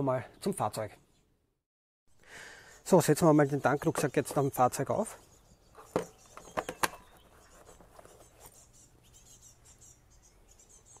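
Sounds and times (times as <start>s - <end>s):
faint bird chirps: 2.3s - 11.0s.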